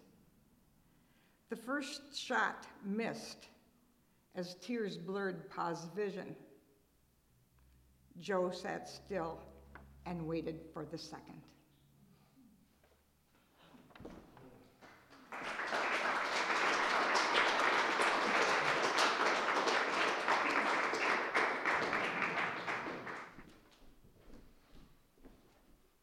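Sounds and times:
audience applauding: 0:14.8 - 0:23.5.

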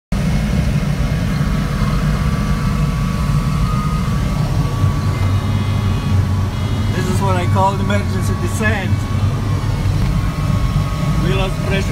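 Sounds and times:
rushing airflow in cockpit: 0:00.1 - 0:11.9
faint high whistle: 0:02.5 - 0:09.4.

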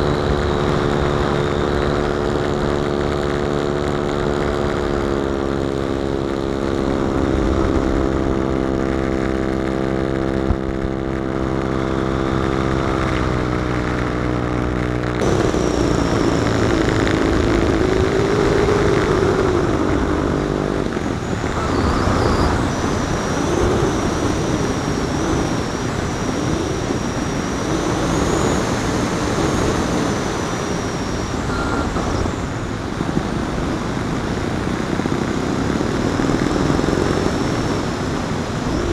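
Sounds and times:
model airplane engine running: 0:00.0 - 0:38.9
rushing air: 0:14.8 - 0:38.9
thin high whistle: 0:31.4 - 0:32.2.

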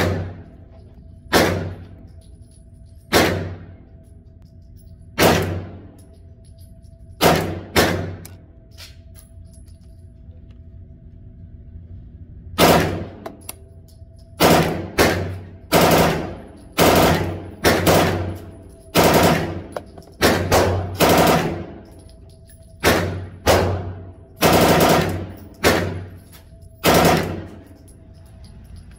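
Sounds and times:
gunshots with ringing tail: 0:00.0 - 0:00.5, 0:01.3 - 0:02.0, 0:03.1 - 0:03.9, 0:05.2 - 0:05.9, 0:07.2 - 0:08.2, 0:12.6 - 0:13.3, 0:14.4 - 0:22.0, 0:22.8 - 0:26.2, 0:26.8 - 0:27.8.

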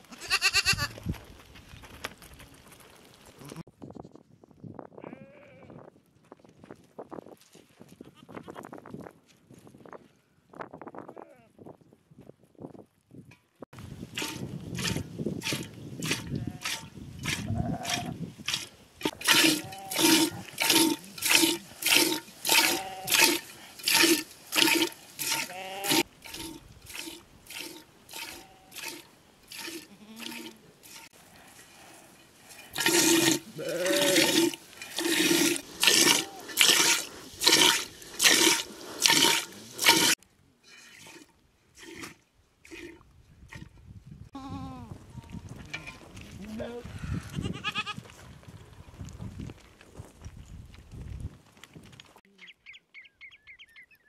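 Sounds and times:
goat bleating: 0:00.0 - 0:01.0, 0:05.0 - 0:05.7, 0:17.4 - 0:18.2, 0:22.5 - 0:23.4, 0:25.3 - 0:26.1, 0:29.8 - 0:30.6, 0:33.4 - 0:34.3, 0:44.4 - 0:44.9, 0:45.7 - 0:48.0
milk squirting into metal pot: 0:14.2 - 0:31.7, 0:32.5 - 0:33.5, 0:34.1 - 0:40.2, 0:40.8 - 0:43.7.

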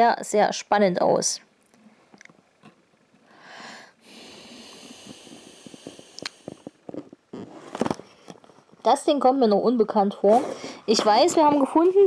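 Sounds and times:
person breathing close up: 0:03.2 - 0:07.2, 0:10.4 - 0:10.9.

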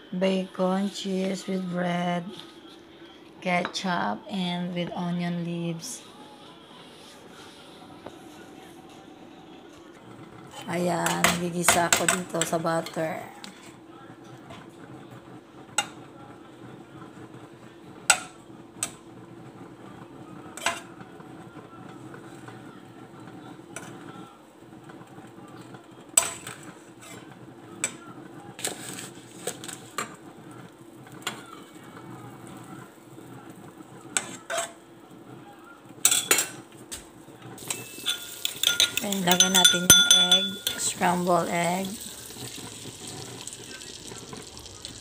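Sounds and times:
utensils clinking against dishes: 0:20.6 - 0:20.9, 0:34.2 - 0:34.8, 0:36.0 - 0:36.6, 0:37.6 - 0:41.6
fork beating eggs in bowl: 0:38.0 - 0:41.2.

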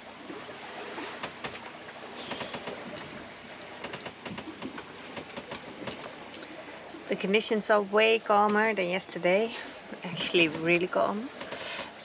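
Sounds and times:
water hissing along a hull: 0:00.0 - 0:12.0
light clicks and knocks: 0:01.2 - 0:06.5.

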